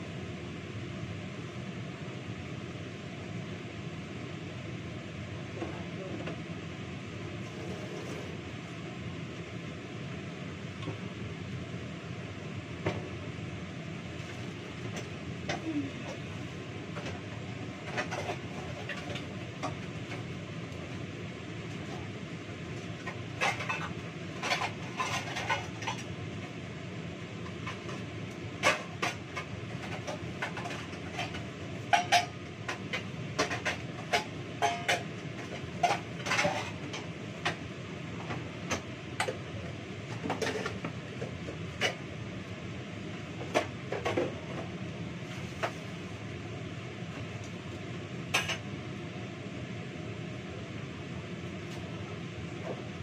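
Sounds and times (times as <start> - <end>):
kitchen exhaust fan hum: 0.0 - 53.0
dishes and utensils clinking: 30.4 - 35.0.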